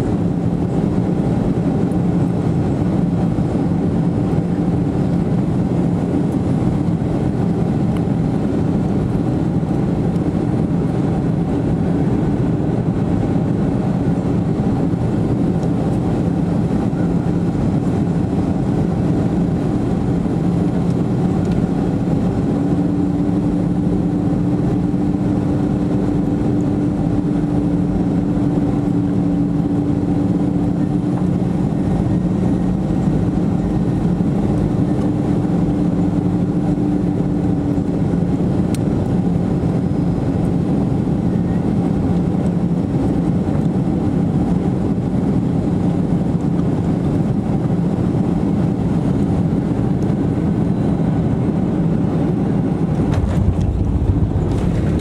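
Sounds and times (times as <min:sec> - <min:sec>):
jet engine drone: 0:00.0 - 0:55.0
steady hum: 0:47.4 - 0:55.0
rush of air: 0:52.5 - 0:55.0.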